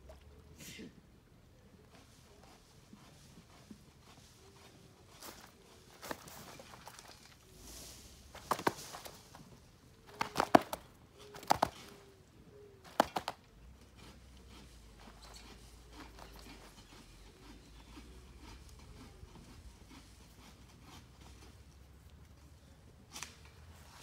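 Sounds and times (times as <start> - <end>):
quiet handling of fish: 3.9 - 12.3.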